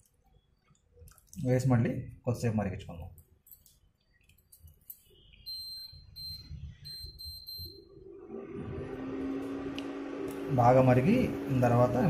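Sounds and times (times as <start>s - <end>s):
high electronic beeps: 5.0s - 8.0s.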